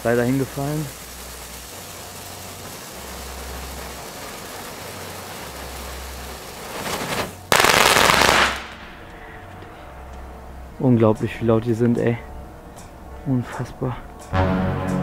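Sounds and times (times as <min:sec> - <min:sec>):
firework fountain hissing: 0:00.0 - 0:09.1
firework crackling: 0:00.0 - 0:09.2.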